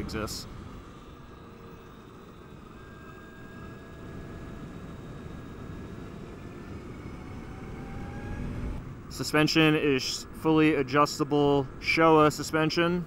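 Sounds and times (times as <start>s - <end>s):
electric motor whine: 0.0s - 8.9s
wind and road rumble: 0.0s - 13.0s.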